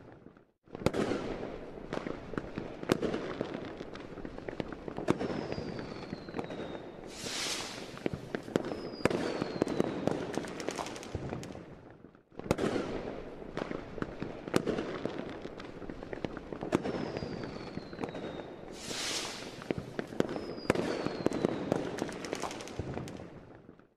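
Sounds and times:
fireworks bangs and crackling: 0:00.0 - 0:23.9
falling firework whistles: 0:05.0 - 0:11.2, 0:16.7 - 0:23.2
fireworks hissing: 0:07.0 - 0:08.6, 0:18.7 - 0:20.9.

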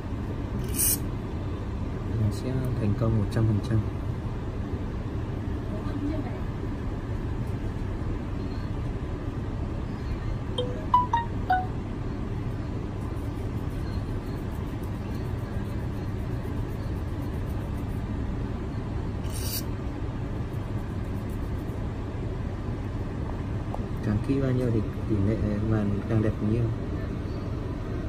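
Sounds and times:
short beeps: 0:10.6 - 0:11.8.

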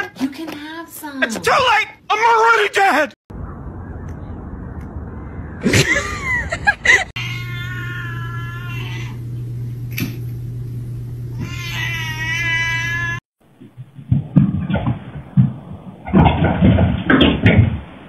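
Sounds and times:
steady low hum: 0:03.3 - 0:12.3
cat yowling: 0:07.2 - 0:09.2, 0:11.3 - 0:13.2.

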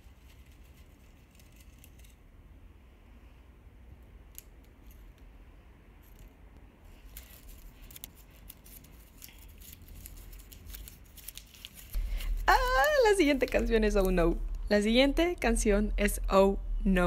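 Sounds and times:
paper crinkling: 0:06.9 - 0:14.2.

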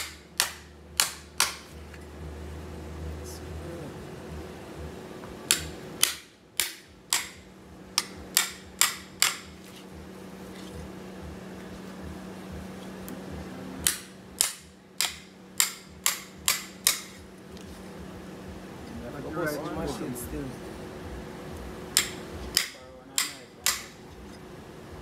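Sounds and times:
hammer striking machete spine: 0:00.0 - 0:01.7, 0:05.5 - 0:07.4, 0:08.0 - 0:09.6, 0:13.8 - 0:17.2, 0:22.0 - 0:24.0.

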